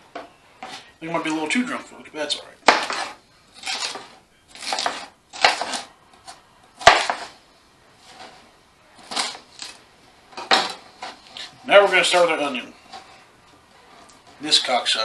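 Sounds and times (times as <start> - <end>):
knife slicing pepper: 2.6 - 7.4.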